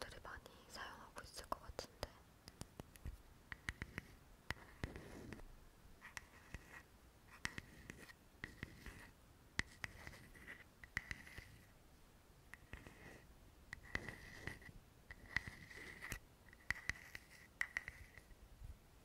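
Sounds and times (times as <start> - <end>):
tapping and scratching on objects: 2.5 - 5.4, 6.1 - 6.8, 7.4 - 11.7, 12.5 - 18.3.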